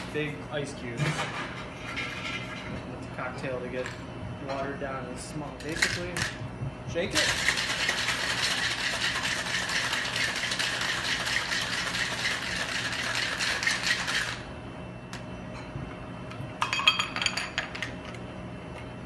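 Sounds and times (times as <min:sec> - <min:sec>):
ice rattling in cocktail shaker: 0:07.2 - 0:14.4
ice clinking against glass: 0:16.6 - 0:17.7.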